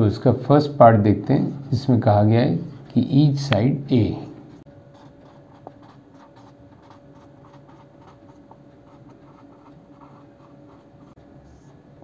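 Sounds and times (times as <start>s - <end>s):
faint steady hum: 0.0s - 12.0s
marker scratching on whiteboard: 4.9s - 11.8s.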